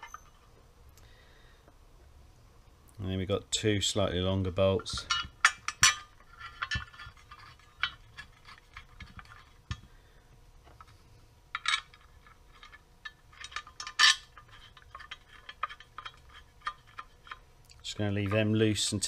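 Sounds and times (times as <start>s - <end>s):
metallic clinks of bolts: 0.0s - 0.4s.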